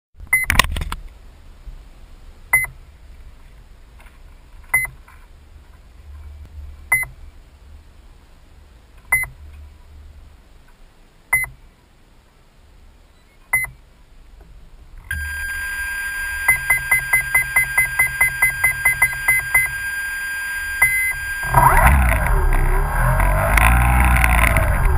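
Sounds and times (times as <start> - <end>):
electronic beeper beeping: 15.1 - 24.9
high electronic whine: 15.1 - 24.9.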